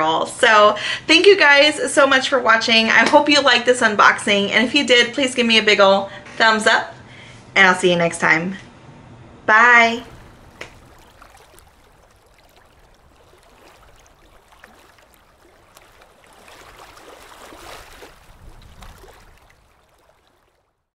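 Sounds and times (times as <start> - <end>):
water gently lapping and splashing: 9.8 - 20.9.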